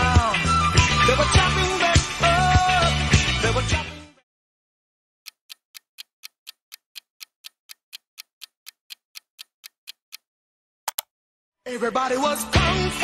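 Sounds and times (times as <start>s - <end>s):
clock ticking: 5.2s - 10.3s
sharp click: 10.9s - 11.1s.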